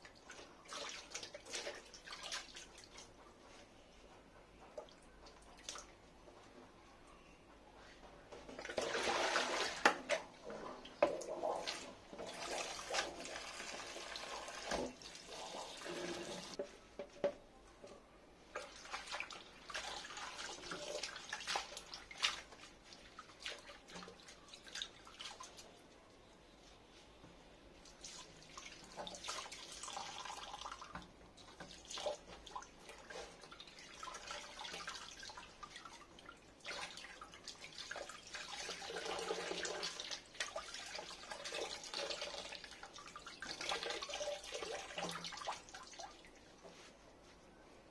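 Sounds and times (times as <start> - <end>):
water splashing in sink: 0.0 - 3.1, 8.5 - 16.6, 18.5 - 25.7, 27.9 - 46.4.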